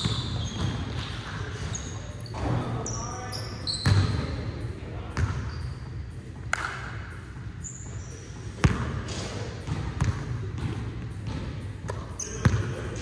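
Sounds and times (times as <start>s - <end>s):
sneaker squeaks: 0.0s - 4.4s, 5.1s - 6.2s, 7.4s - 9.3s, 11.9s - 13.0s.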